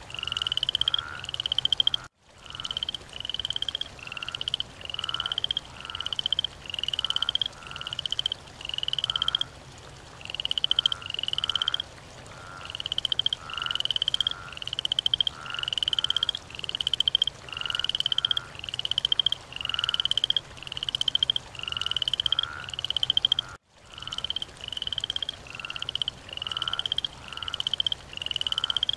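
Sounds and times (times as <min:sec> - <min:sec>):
frogs calling: 0:00.0 - 0:09.5, 0:10.2 - 0:28.9.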